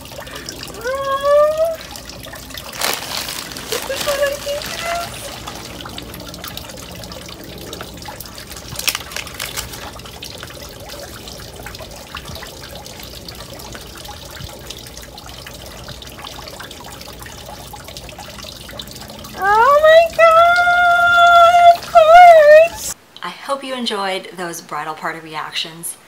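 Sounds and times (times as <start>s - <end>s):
fountain water trickling: 0.0s - 25.4s.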